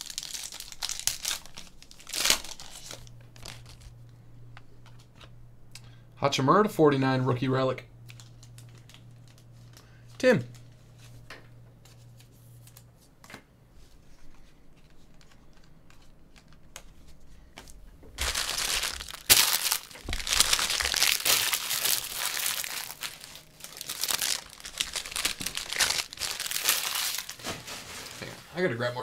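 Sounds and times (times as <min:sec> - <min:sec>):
plastic wrapping crinkling: 0:00.0 - 0:04.0, 0:08.0 - 0:11.2, 0:18.2 - 0:28.4.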